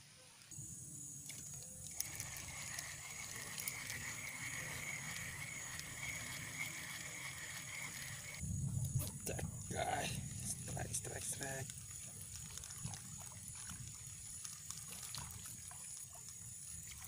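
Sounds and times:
light rain pattering: 8.7 - 16.5.

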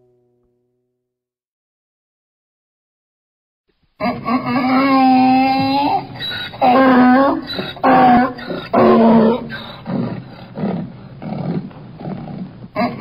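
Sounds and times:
donkey braying: 4.0 - 13.0.

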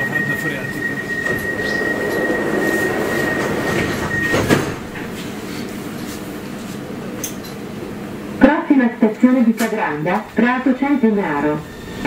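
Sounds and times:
high warning tone: 0.0 - 4.8
train running hum: 0.0 - 12.0
sliding doors thudding shut: 1.3 - 5.2.

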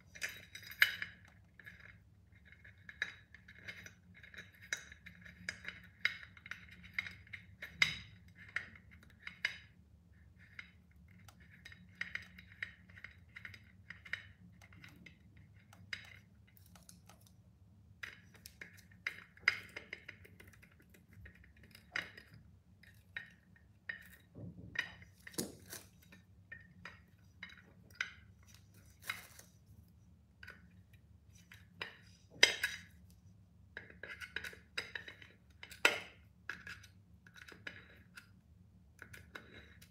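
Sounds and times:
metal clinking and scraping on glass: 0.0 - 9.5.

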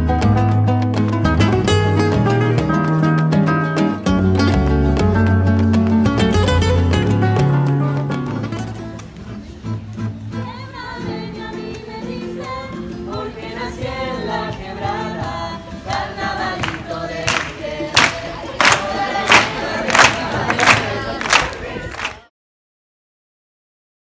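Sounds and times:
guitar piece: 0.0 - 21.2
young voices singing together: 10.4 - 22.3.

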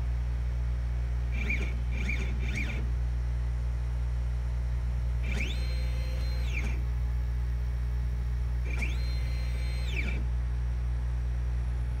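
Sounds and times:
stepper motor whining: 1.3 - 2.9, 5.2 - 6.9, 8.6 - 10.3.

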